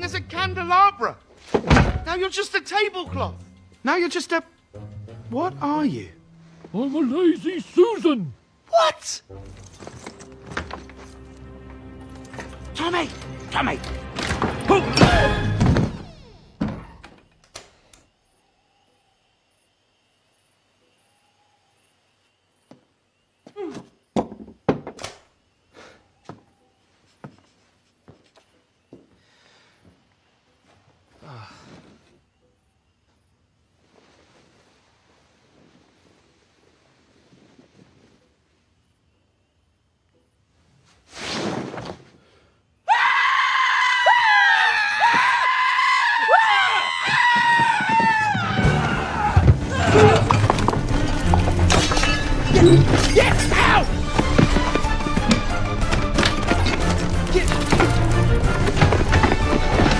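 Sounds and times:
door thudding shut: 0:01.5 - 0:02.2, 0:14.2 - 0:17.3
wooden door creaking: 0:01.5 - 0:02.2, 0:14.1 - 0:17.6
footsteps on wooden floor: 0:09.6 - 0:11.4, 0:53.9 - 0:59.9
man screaming: 0:42.9 - 0:50.3, 0:53.1 - 0:54.0.

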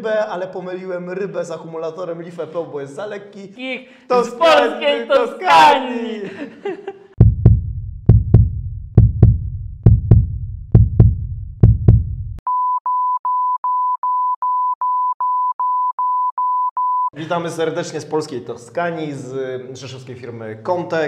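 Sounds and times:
heavy bass hits with low boom: 0:07.2 - 0:12.4.

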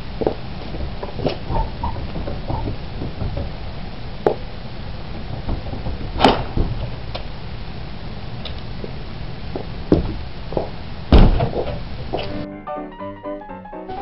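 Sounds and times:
wooden door knocks and clatters: 0:01.6 - 0:03.6, 0:05.2 - 0:07.0, 0:11.1 - 0:11.8
door banging: 0:05.2 - 0:07.1, 0:11.1 - 0:11.8.

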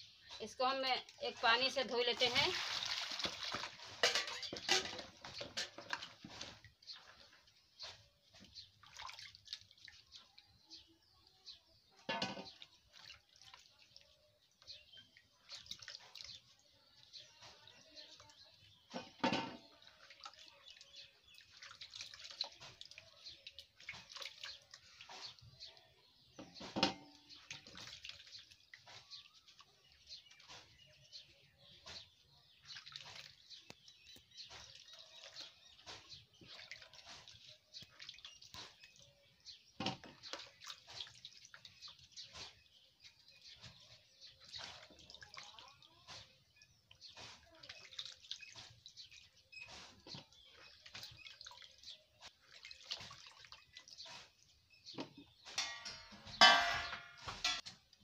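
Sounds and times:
water splashing and dripping: 0:00.0 - 0:58.0.

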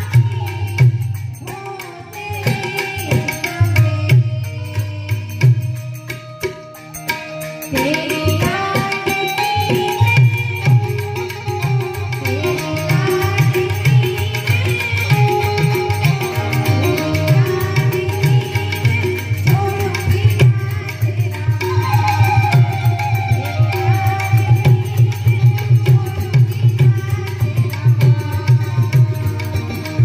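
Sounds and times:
fast tabla beat: 0:00.0 - 0:30.0
harmonium held notes: 0:00.0 - 0:30.0.

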